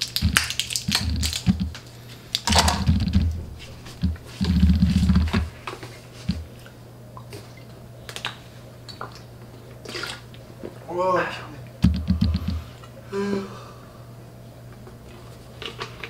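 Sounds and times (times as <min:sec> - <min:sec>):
foil pill packet crinkling: 0:00.0 - 0:05.4
low rumbling thumps: 0:02.5 - 0:05.6, 0:11.8 - 0:12.7.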